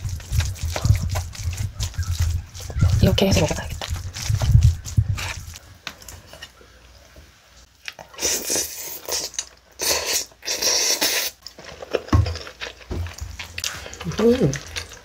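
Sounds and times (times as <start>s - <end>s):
wet mouth and breath noises: 0.0s - 5.6s, 7.9s - 11.5s
chewing food: 0.0s - 6.2s, 7.8s - 15.0s.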